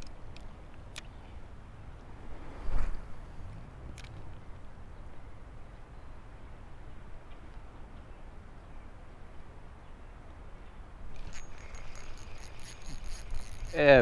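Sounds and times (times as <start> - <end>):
wind rumble on microphone: 1.4 - 5.9
fishing reel clicking and whining: 11.1 - 14.0.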